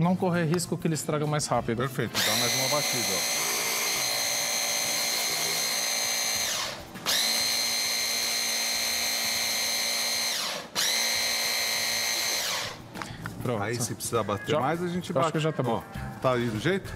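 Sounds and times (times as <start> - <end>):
hand blender motor whining: 2.1 - 12.8.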